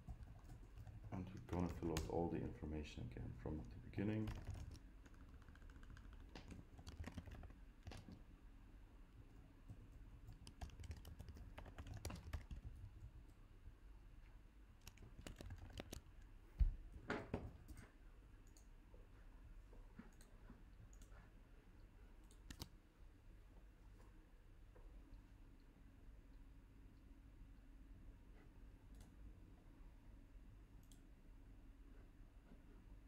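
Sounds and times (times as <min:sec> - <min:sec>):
keyboard typing and clicking: 0:00.0 - 0:02.2, 0:04.0 - 0:08.2, 0:09.7 - 0:13.2, 0:14.8 - 0:16.2, 0:22.2 - 0:22.7.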